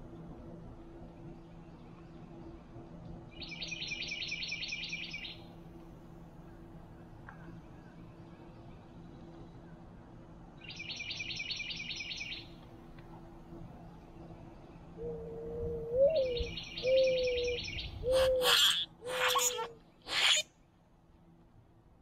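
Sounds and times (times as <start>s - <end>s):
grackle harsh calls: 18.1s - 20.5s.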